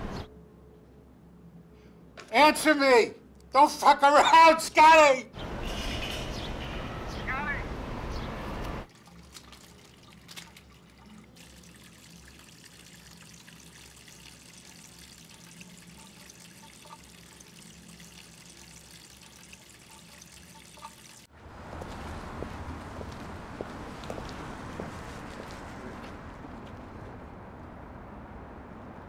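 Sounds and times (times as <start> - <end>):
street noise: 0.0 - 2.4, 3.2 - 8.9, 20.8 - 29.0
water trickling and dripping: 8.8 - 26.2.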